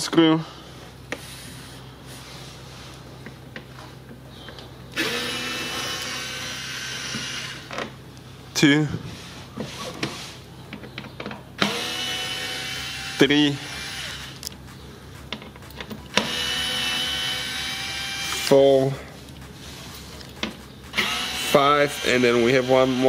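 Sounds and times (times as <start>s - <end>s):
cordless screwdriver whirring: 4.9s - 7.7s, 11.6s - 18.6s, 19.3s - 23.0s.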